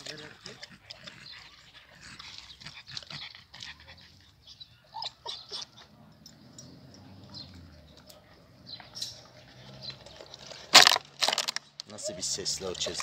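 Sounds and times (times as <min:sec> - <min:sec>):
dogs lapping water: 0:00.0 - 0:04.4.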